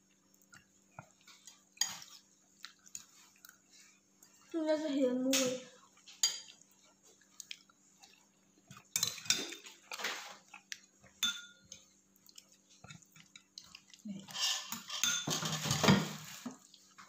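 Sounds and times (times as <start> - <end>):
spoon clinking on ceramic plate: 11.2 - 11.8, 14.6 - 15.8.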